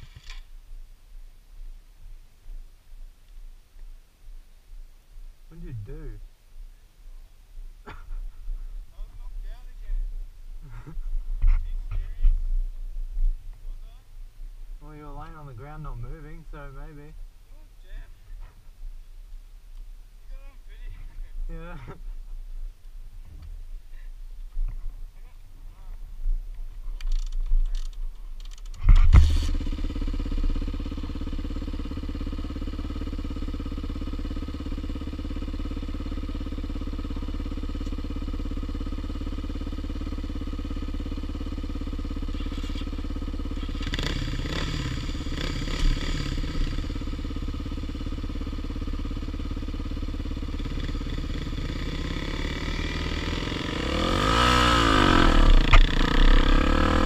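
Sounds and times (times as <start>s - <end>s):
dirt bike engine: 0.0s - 3.5s, 5.4s - 57.0s.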